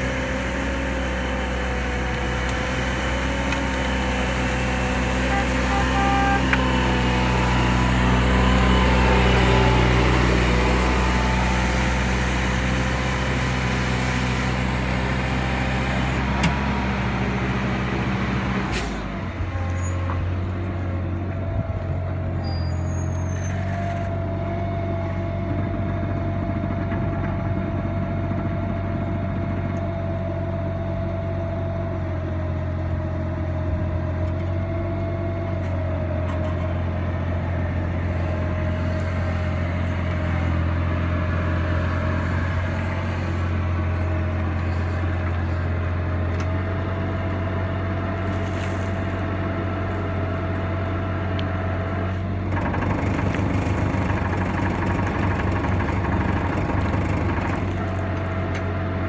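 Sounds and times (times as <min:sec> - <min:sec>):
sweeper engine running: 0:00.0 - 0:22.4, 0:35.3 - 0:59.0.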